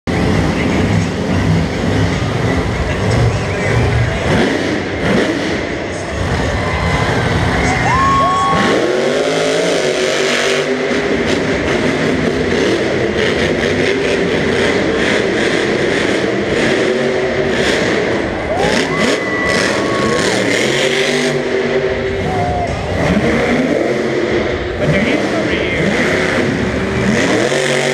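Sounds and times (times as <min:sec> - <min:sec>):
crowd noise: 0:00.0 - 0:27.9
monster truck engine revving: 0:00.0 - 0:27.9.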